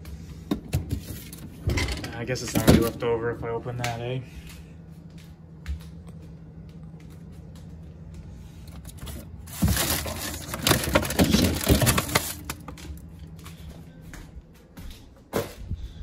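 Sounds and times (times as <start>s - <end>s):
low steady hum: 0.0s - 16.0s
plastic bags and containers crinkling: 8.6s - 13.4s.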